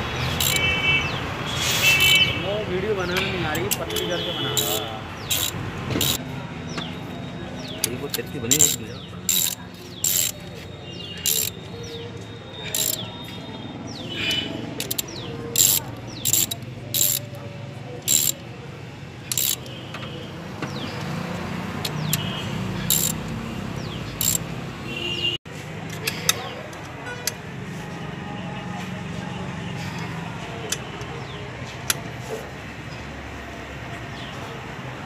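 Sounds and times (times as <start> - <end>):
ratchet wrench clicking: 0.2 - 0.7, 1.9 - 2.3, 3.6 - 6.2, 7.7 - 10.5, 11.2 - 11.7, 12.6 - 13.1, 14.8 - 17.4, 18.0 - 18.5, 19.2 - 19.8, 21.8 - 23.4, 24.2 - 24.5.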